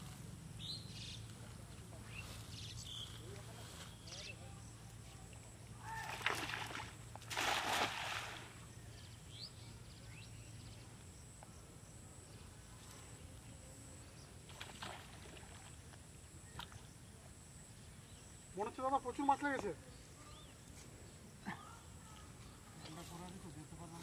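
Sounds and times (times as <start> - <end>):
net splashing on water: 5.9 - 8.6
soft water splash: 5.9 - 8.7, 14.5 - 15.8.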